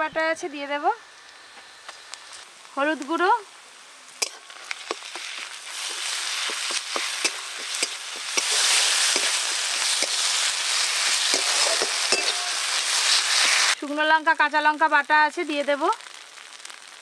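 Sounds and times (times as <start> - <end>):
onions sizzling in oil: 0.3 - 17.0
metal spatula scraping pan: 4.2 - 13.7.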